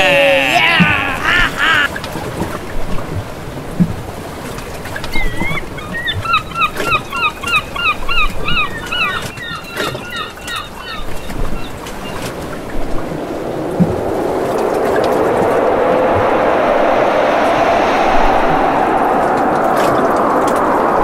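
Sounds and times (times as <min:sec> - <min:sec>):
birds calling: 0:05.5 - 0:12.2
steady rushing noise: 0:12.3 - 0:21.0.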